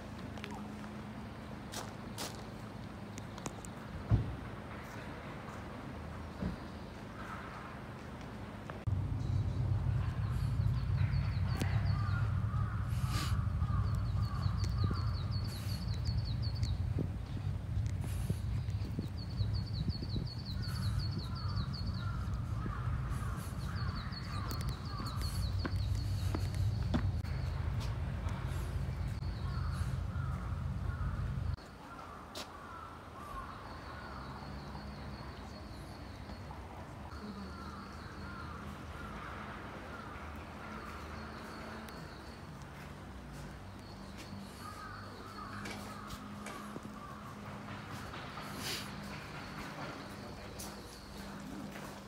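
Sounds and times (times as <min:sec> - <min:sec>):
wind rumble on microphone: 0:08.9 - 0:31.6
falling bird calls: 0:09.3 - 0:16.9, 0:18.0 - 0:27.6, 0:43.3 - 0:52.0
crows cawing: 0:11.1 - 0:15.2, 0:21.3 - 0:26.4, 0:29.4 - 0:31.2, 0:31.8 - 0:33.6, 0:37.7 - 0:40.1, 0:44.5 - 0:48.0.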